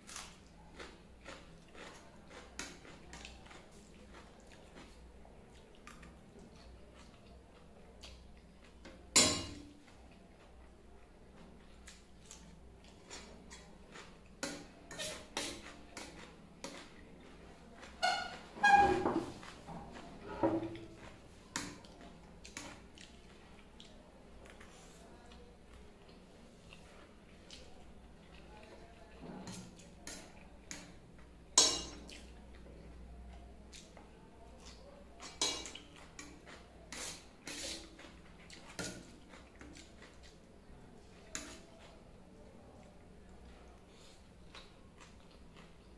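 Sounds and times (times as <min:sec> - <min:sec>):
chewing: 0:00.1 - 0:09.0, 0:09.8 - 0:18.5, 0:19.3 - 0:45.9.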